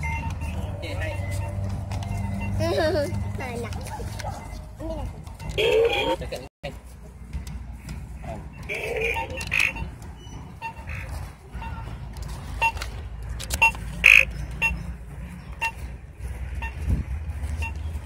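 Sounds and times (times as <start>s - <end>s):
short electronic beeps: 0.0s - 3.4s, 4.3s - 4.8s, 8.5s - 11.9s, 12.6s - 12.8s, 13.6s - 15.9s, 16.6s - 16.9s, 17.6s - 17.9s.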